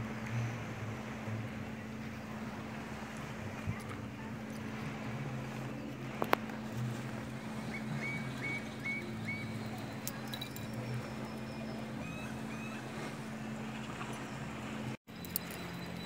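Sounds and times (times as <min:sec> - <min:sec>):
distant boat motor humming: 0:00.0 - 0:16.0
bird chirping: 0:07.7 - 0:10.4.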